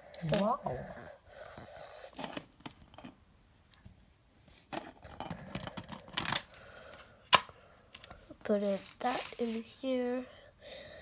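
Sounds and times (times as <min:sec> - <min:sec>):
plastic bricks clicking and scraping: 0:04.7 - 0:06.5.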